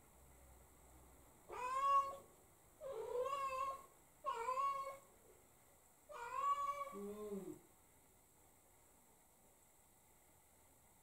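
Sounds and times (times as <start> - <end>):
cat meowing: 1.5 - 2.2, 2.8 - 5.1, 6.1 - 7.5.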